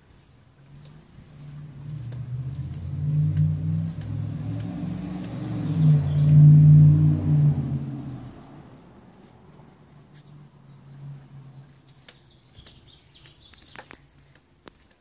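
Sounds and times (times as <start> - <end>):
car engine passing: 0.6 - 11.9.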